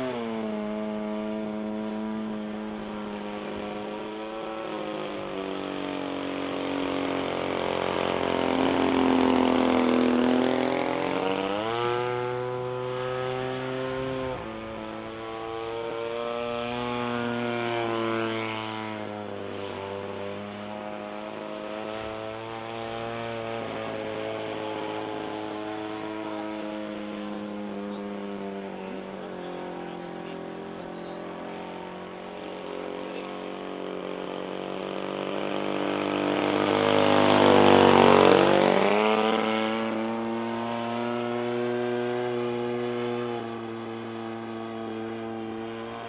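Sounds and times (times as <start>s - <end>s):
model airplane engine and propeller: 0.0s - 46.0s.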